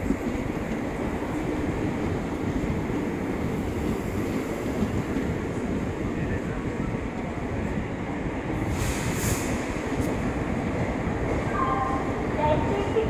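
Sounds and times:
train wheels rumbling: 0.0s - 13.0s
brief hiss: 8.6s - 9.8s.

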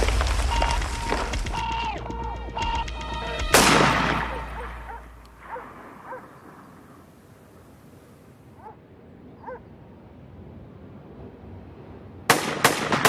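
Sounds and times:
music: 0.5s - 5.1s
gunshot: 3.5s - 4.5s.

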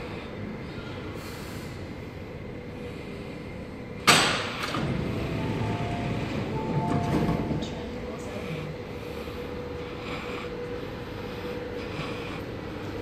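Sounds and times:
steady hum: 0.0s - 13.0s
train doors sliding open: 4.0s - 8.1s
faint steady tones: 4.8s - 13.0s.

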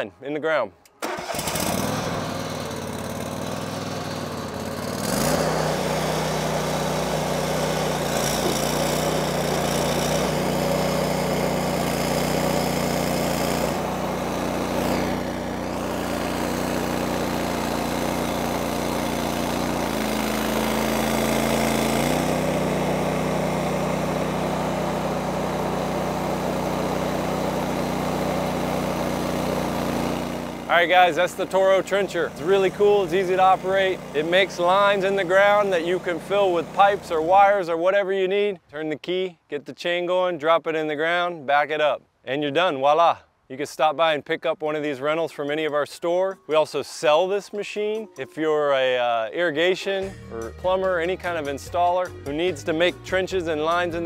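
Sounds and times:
trencher engine digging soil: 0.8s - 37.8s.

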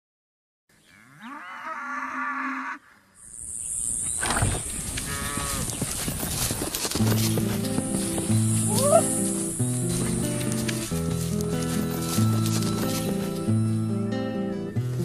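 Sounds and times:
cattle mooing: 0.8s - 3.0s, 5.0s - 5.7s.

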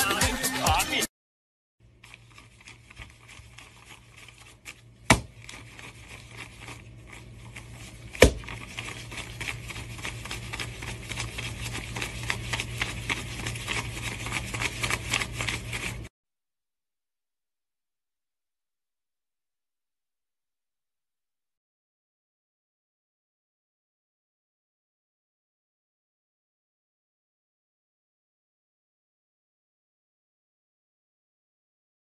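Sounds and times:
faint steady hum: 1.8s - 16.1s
banknotes being counted by hand: 1.9s - 16.1s
sharp paper snaps: 2.2s - 6.8s, 7.8s - 16.0s.

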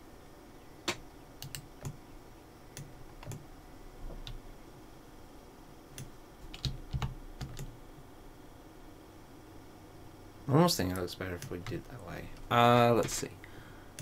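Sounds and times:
computer keyboard keys clicking: 0.9s - 2.0s, 6.4s - 7.7s.

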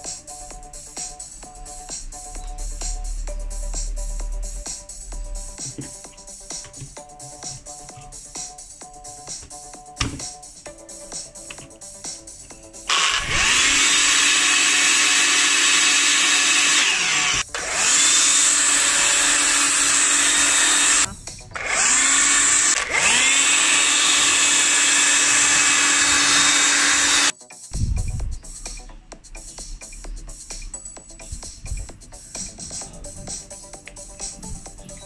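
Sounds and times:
drill blower whining: 12.9s - 27.3s.

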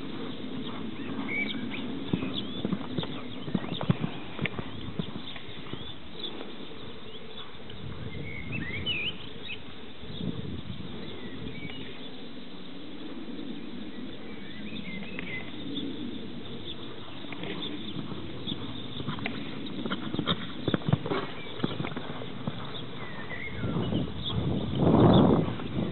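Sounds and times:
horse hoofbeats on sand: 0.0s - 8.1s, 16.7s - 25.9s
small birds chirping: 0.0s - 25.9s.

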